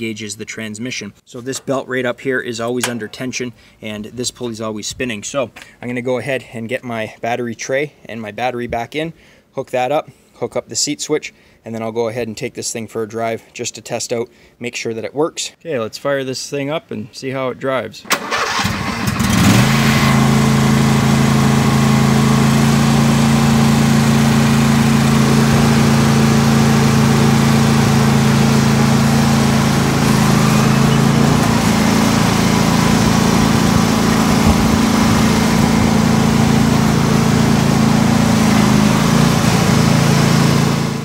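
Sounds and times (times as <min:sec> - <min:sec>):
riding mower engine running: 0:18.1 - 0:41.0.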